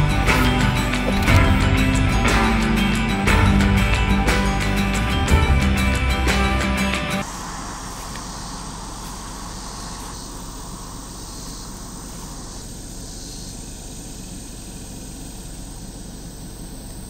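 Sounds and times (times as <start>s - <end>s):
car cabin hum: 0.0s - 2.6s, 7.2s - 17.0s
steady high hiss: 6.3s - 17.0s.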